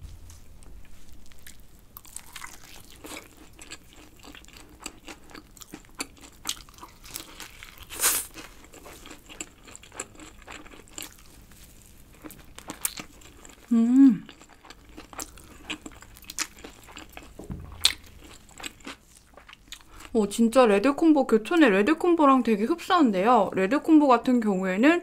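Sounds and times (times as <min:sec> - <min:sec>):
crunching fried chicken: 0:01.1 - 0:20.2.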